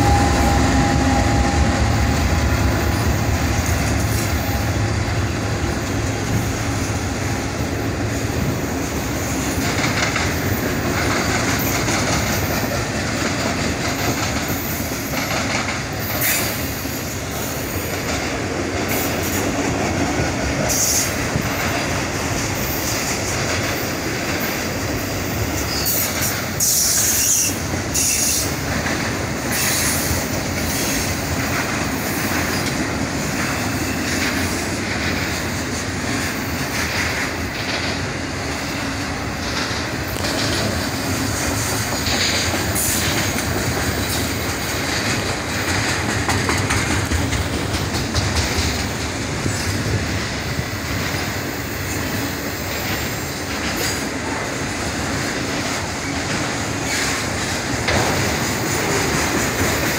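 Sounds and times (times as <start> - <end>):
high wheel squeal: 0.0 - 4.9, 25.6 - 28.6
freight train wheels rumbling: 0.0 - 59.9
wheels clacking over rail joints: 0.0 - 59.9.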